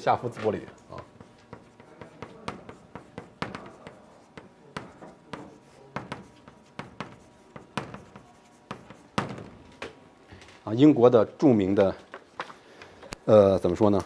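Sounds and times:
chalk tapping and scraping: 0:00.3 - 0:10.0.

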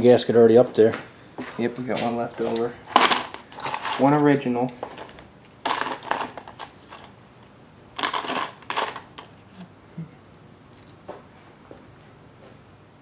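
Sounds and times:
metal tools clattering on workbench: 0:02.4 - 0:04.2.

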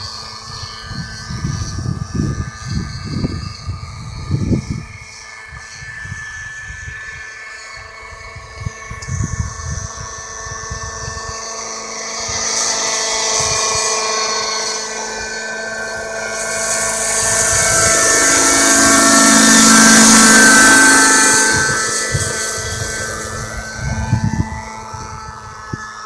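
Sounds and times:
model helicopter engine whine: 0:00.0 - 0:26.0.

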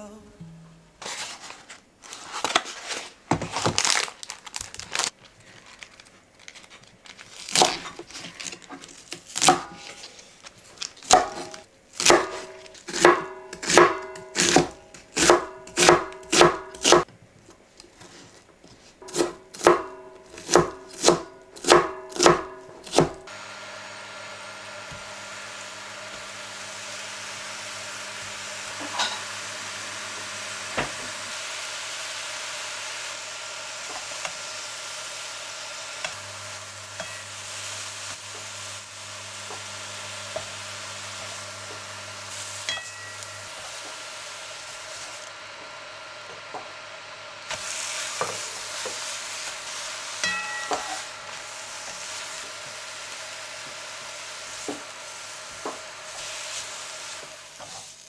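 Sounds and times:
lettuce sizzling in a pan: 0:00.0 - 0:17.1, 0:18.9 - 0:58.0
knife chopping on wooden board: 0:11.1 - 0:17.0, 0:19.1 - 0:23.2.

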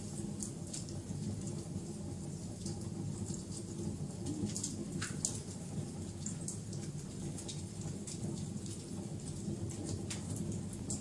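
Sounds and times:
wood fire crackling: 0:00.0 - 0:11.0.

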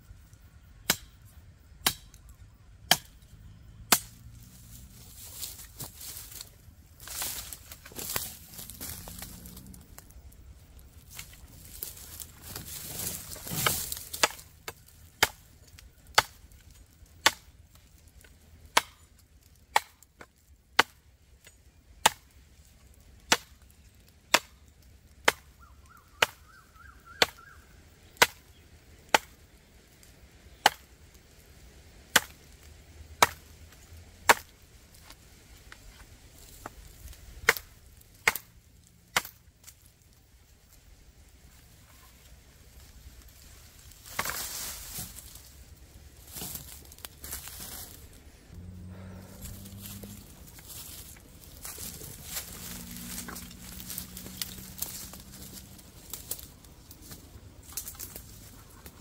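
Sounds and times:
rustle: 0:00.0 - 0:59.0
knife chopping bamboo: 0:00.8 - 0:01.2, 0:01.8 - 0:02.2, 0:02.9 - 0:03.2, 0:13.4 - 0:14.6, 0:15.2 - 0:15.4, 0:16.1 - 0:16.4, 0:17.2 - 0:17.5, 0:18.7 - 0:19.0, 0:19.7 - 0:20.0, 0:20.8 - 0:21.0, 0:22.0 - 0:22.3, 0:23.3 - 0:23.5, 0:24.3 - 0:24.6, 0:25.2 - 0:25.5, 0:26.2 - 0:26.5, 0:27.1 - 0:27.5, 0:29.1 - 0:29.4, 0:30.6 - 0:30.9, 0:32.1 - 0:32.4, 0:33.2 - 0:33.4, 0:34.2 - 0:35.2, 0:37.4 - 0:38.5, 0:39.1 - 0:39.4.

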